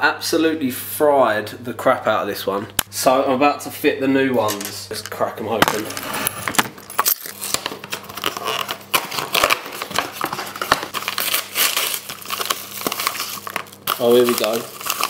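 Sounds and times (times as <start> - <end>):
packaging crinkling and crackling: 6.9 - 15.0.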